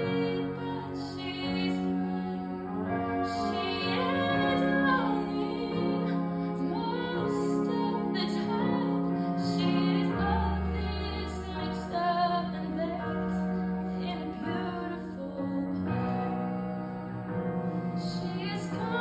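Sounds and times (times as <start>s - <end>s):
girl singing into microphone: 0.0s - 13.4s.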